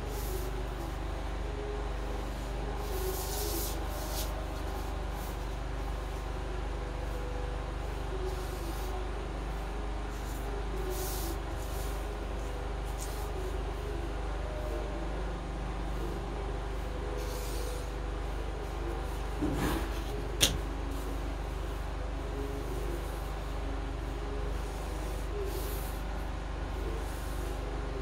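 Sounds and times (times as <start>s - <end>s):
low mechanical hum: 0.0s - 28.0s
marker scratching on paper: 2.9s - 4.9s.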